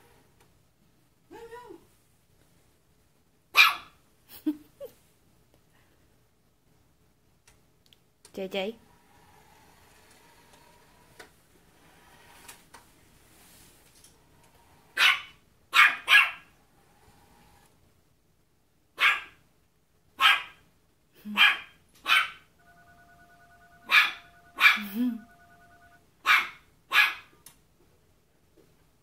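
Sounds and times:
puppy yapping: 3.6 - 4.0, 15.0 - 16.5, 19.0 - 19.4, 20.2 - 20.6, 21.4 - 22.4, 23.9 - 24.9, 26.2 - 27.3.

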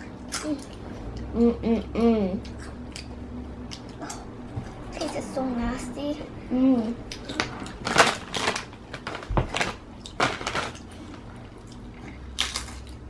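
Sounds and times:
child chewing crisp chip: 2.4 - 4.8, 7.1 - 13.0.

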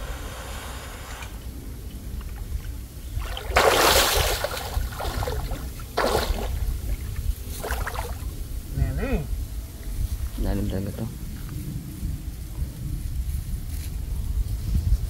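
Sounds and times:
steady low rumble: 0.0 - 15.0
water splashing and sloshing: 1.2 - 8.7.

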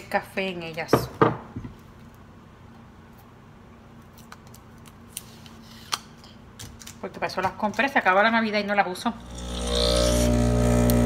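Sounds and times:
steady low hum: 8.8 - 11.0.

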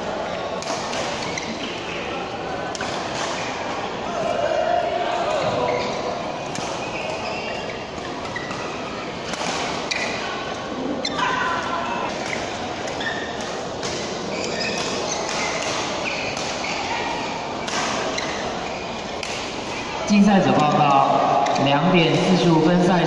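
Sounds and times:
play on neighbouring courts: 0.0 - 23.0
shoes squeaking on court: 1.0 - 2.0, 5.3 - 11.3, 12.0 - 20.0
racket hitting shuttlecock: 8.0 - 10.2, 12.1 - 18.5, 19.2 - 19.7.

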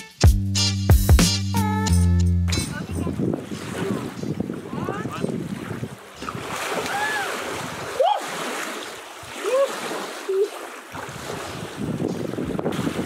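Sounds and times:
wind: 2.4 - 13.0
water splashing: 3.1 - 13.0.

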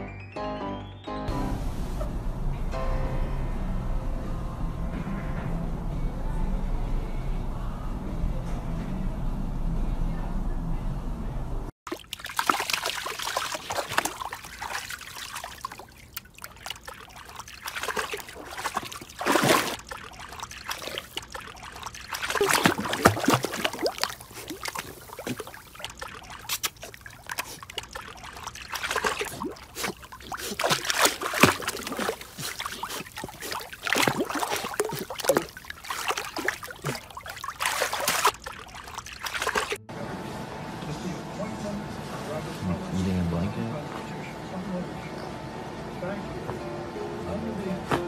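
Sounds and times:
puppy splashing in water: 11.9 - 39.8.

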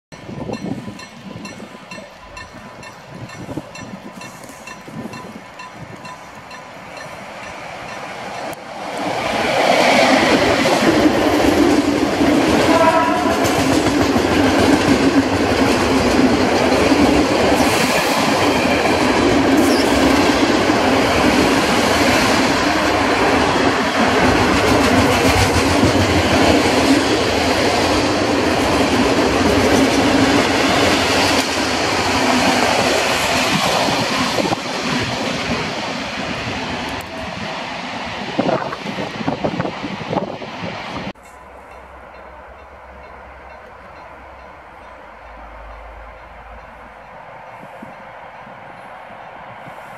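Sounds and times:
freight train wagons rumbling: 0.1 - 49.8
train horn blast: 12.6 - 13.7.

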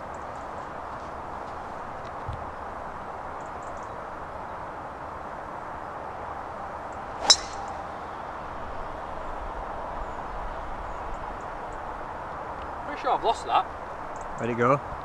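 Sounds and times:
golf driver striking ball: 7.2 - 7.9.

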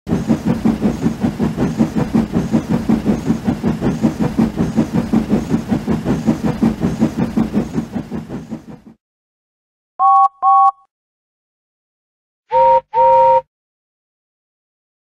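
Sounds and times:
steam locomotive chuffing: 0.1 - 9.0.

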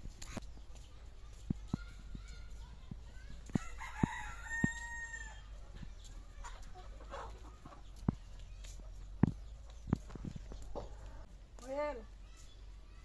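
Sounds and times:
sandals slapping on dirt: 0.0 - 12.9
rooster crowing: 3.6 - 5.5.

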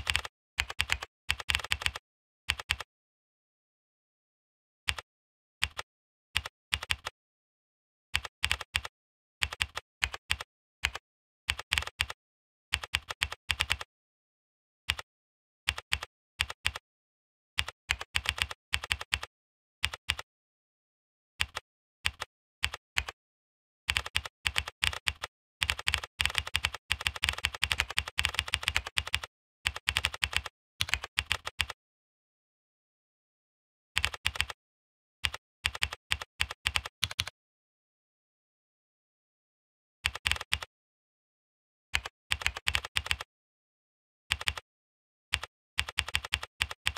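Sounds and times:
computer keyboard typing: 0.0 - 2.9, 6.4 - 7.1, 8.2 - 12.2, 12.8 - 13.9, 15.7 - 16.8, 17.6 - 19.3, 19.9 - 20.2, 21.4 - 23.2, 23.9 - 31.8, 34.0 - 34.6, 35.2 - 37.3, 40.1 - 40.7, 42.0 - 43.3, 44.3 - 44.6, 45.4 - 46.9.

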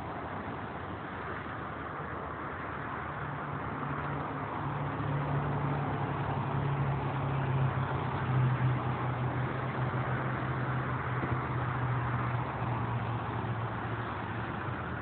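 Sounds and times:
freeway traffic rushing: 0.0 - 15.0
low engine hum: 0.0 - 15.0.

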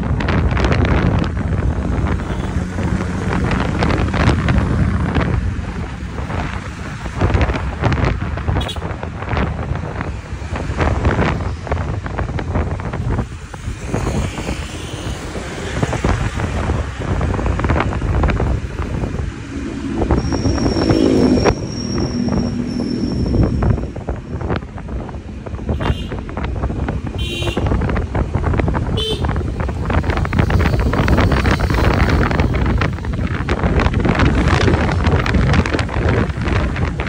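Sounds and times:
road noise rumble: 0.0 - 37.0
wind buffeting microphone: 0.0 - 37.0
short pitched sound: 19.0 - 24.0.

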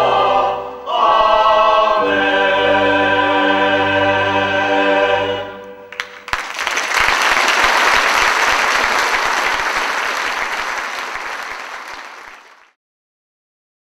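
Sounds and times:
choir singing final note: 0.0 - 12.2
audience applauding: 5.9 - 12.8.

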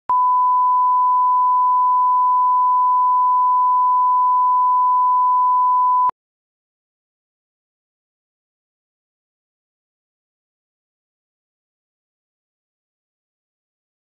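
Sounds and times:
steady test tone beep: 0.1 - 6.1.

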